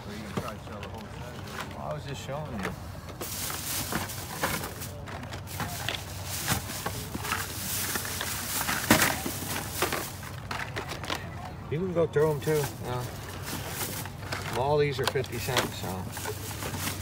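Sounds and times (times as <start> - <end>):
faint voices: 0.0 - 17.0
toy cars clicking and rattling: 0.2 - 11.5, 12.2 - 17.0.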